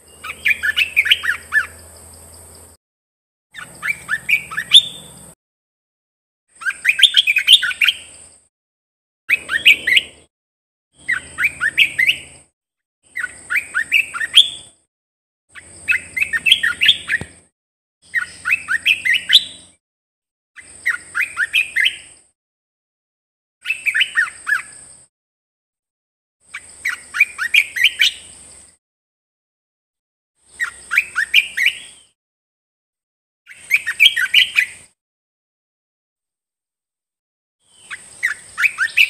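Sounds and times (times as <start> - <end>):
bird singing whistled phrases: 0.1 - 1.8, 3.6 - 5.2, 6.6 - 8.1, 9.3 - 10.2, 11.0 - 12.4, 13.1 - 14.8, 15.6 - 17.3, 18.1 - 19.7, 20.7 - 22.1, 23.6 - 24.8, 26.6 - 28.3, 30.6 - 32.2, 33.5 - 34.8, 37.8 - 39.0.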